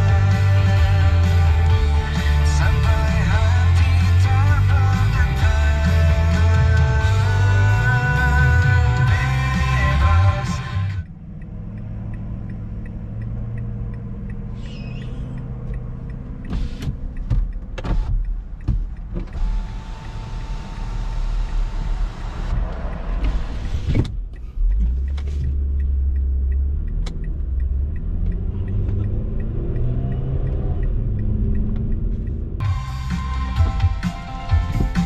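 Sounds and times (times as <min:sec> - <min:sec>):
car engine rumbling: 0:00.0 - 0:35.0
sharp knocks and clicks: 0:11.0 - 0:19.7.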